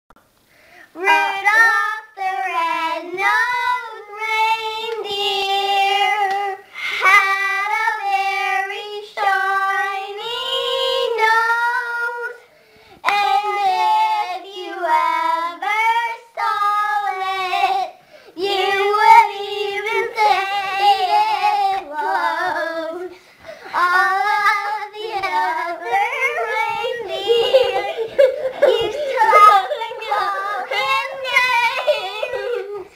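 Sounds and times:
children singing: 0:13.1 - 0:32.9.

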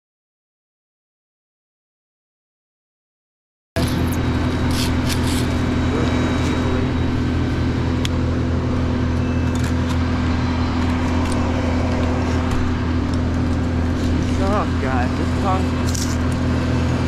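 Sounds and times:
large engine running steadily: 0:03.8 - 0:17.0.

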